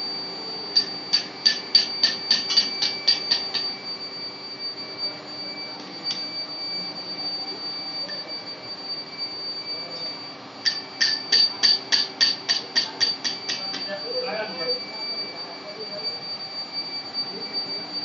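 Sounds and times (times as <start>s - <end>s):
furnace high-pitched whine: 0.0s - 18.0s.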